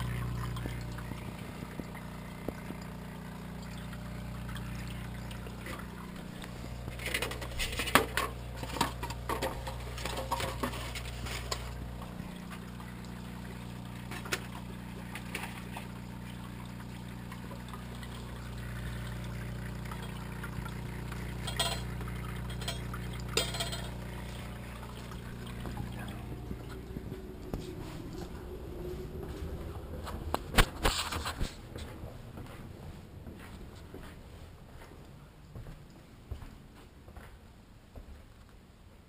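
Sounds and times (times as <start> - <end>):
water trickling: 0.0 - 30.5
water pump humming: 0.0 - 34.8
clicks and rattles: 21.4 - 24.0.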